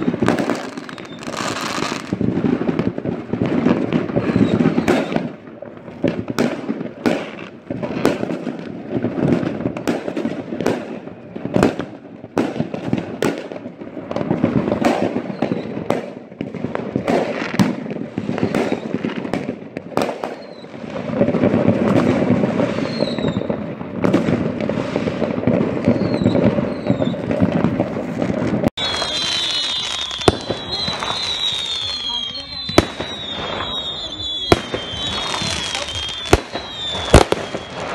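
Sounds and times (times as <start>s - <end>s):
faint firework whistles: 0.0s - 5.4s, 14.8s - 27.6s, 28.7s - 37.9s
distant fireworks rumble and crackle: 0.0s - 37.9s
fireworks sharp bangs: 0.0s - 37.9s.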